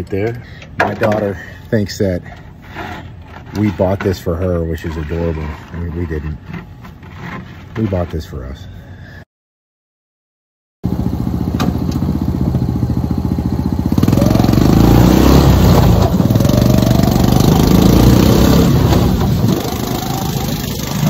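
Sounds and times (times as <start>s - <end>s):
small jeep engine running: 10.8s - 21.0s.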